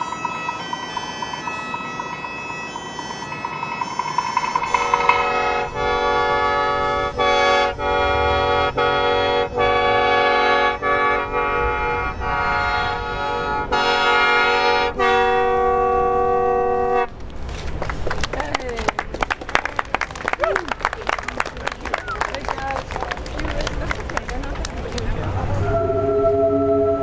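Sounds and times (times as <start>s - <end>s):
mouth organ reedy chords: 0.0s - 17.1s.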